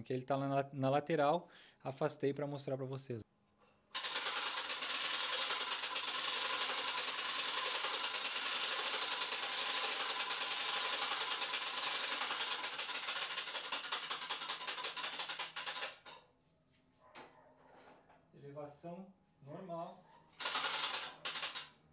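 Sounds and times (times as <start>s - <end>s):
hand crank clicking rapidly: 4.0s - 16.2s, 20.4s - 21.8s.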